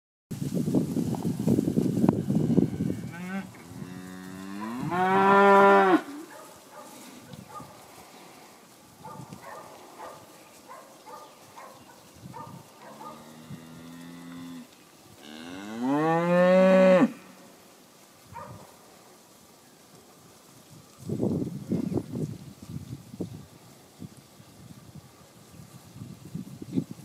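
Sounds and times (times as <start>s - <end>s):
cows mooing: 2.3s - 6.4s, 12.8s - 17.4s.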